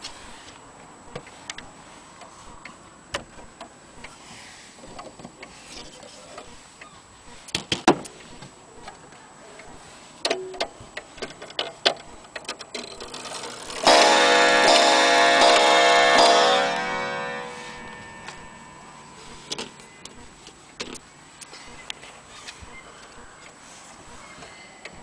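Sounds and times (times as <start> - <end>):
clock pendulum ticking: 13.0 - 20.2.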